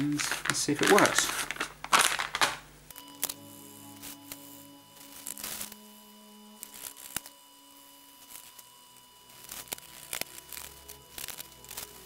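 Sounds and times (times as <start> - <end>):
faint steady tones: 2.8 - 12.0.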